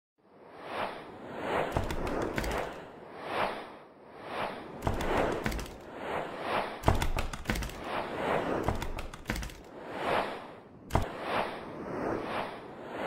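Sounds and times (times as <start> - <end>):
whooshes: 0.3 - 13.0
sharp clicks and hits: 1.7 - 2.8, 4.8 - 5.9, 6.8 - 7.9, 8.6 - 9.7.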